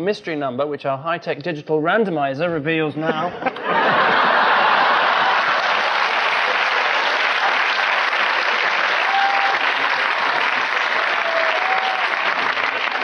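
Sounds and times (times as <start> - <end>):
audience applauding: 3.9 - 13.0.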